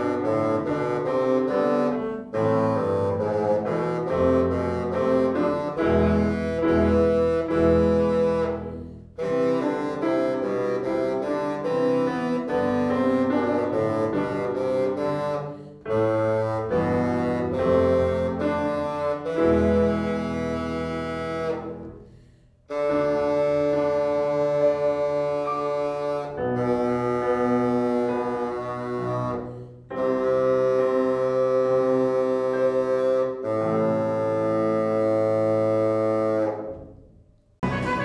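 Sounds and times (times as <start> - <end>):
bassoon melody: 0.0 - 38.0
piano accompaniment: 0.0 - 38.0.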